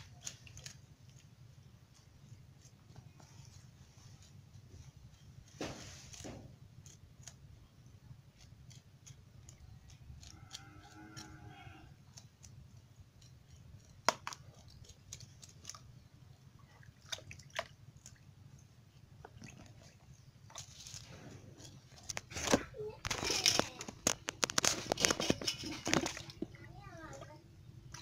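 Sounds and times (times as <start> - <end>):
fish scales scraped by hand: 0.0 - 16.2, 17.0 - 27.2
water sloshing in a basin: 16.5 - 18.3, 19.1 - 21.2, 24.5 - 28.0.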